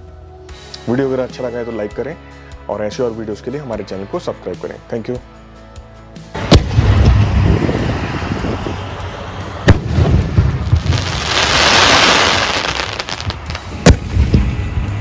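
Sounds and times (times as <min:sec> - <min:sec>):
firework shell bang: 0:06.4 - 0:07.5, 0:09.7 - 0:14.4
firework crackle: 0:06.4 - 0:15.0.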